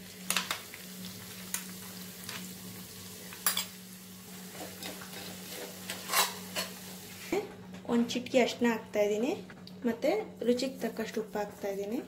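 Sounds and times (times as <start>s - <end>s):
paste sizzling in hot oil: 0.0s - 7.2s.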